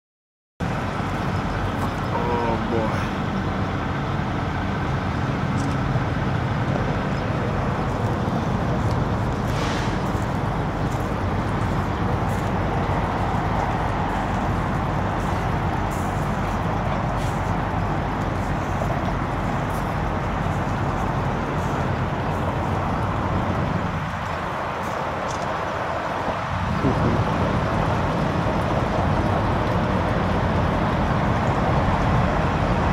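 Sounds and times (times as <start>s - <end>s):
road traffic rumble: 0.6s - 32.9s
brief hiss: 9.5s - 10.2s.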